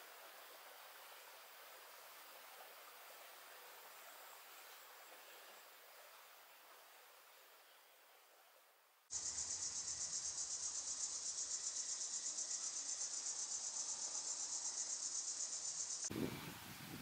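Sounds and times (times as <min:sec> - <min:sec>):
faint hiss: 0:00.0 - 0:17.0
insect chorus pulsing: 0:09.1 - 0:16.4.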